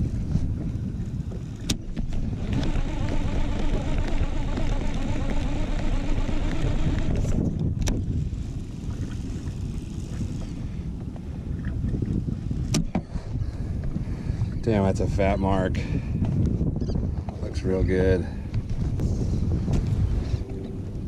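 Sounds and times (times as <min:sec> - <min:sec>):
wind rumble on microphone: 0:00.0 - 0:21.0
fishing reel whirring: 0:02.0 - 0:10.7.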